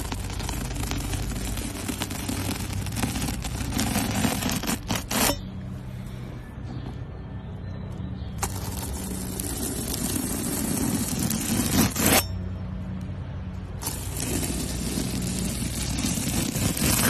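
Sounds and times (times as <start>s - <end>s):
knife scraping through foam: 0.0s - 5.4s, 8.4s - 12.4s, 13.8s - 17.0s.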